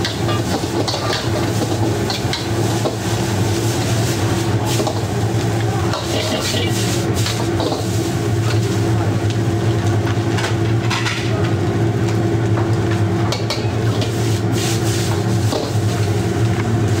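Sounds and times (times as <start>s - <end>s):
metal utensils scraping a wok: 0.0s - 5.0s
noodles sizzling in a wok: 0.0s - 9.7s, 13.4s - 17.0s.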